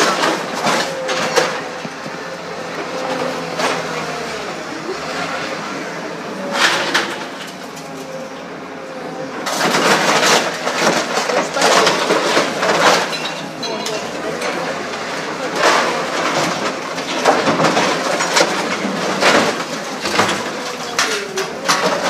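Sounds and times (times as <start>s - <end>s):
scrap clattering and grinding: 0.0s - 5.7s, 6.4s - 8.2s, 9.4s - 22.0s
metal crashes: 9.4s - 14.7s.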